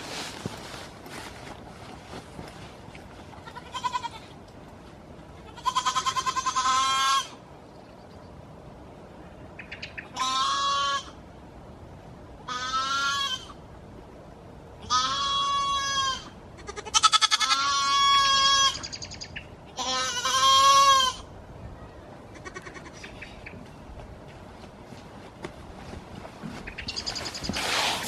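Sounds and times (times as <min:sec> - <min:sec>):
goat kid bleating: 0:03.3 - 0:04.4, 0:05.3 - 0:07.4, 0:10.1 - 0:11.2, 0:12.5 - 0:13.6, 0:14.8 - 0:18.9, 0:19.7 - 0:21.3, 0:22.3 - 0:23.0.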